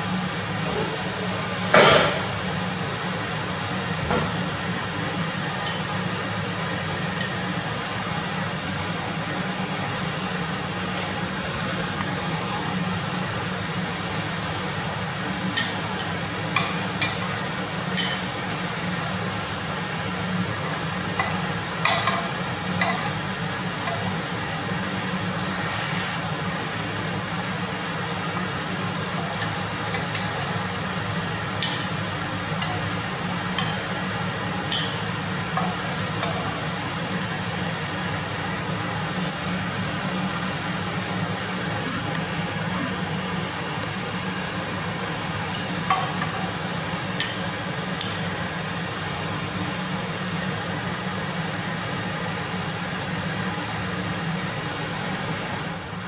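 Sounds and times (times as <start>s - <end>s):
low hum: 23.8s - 27.9s.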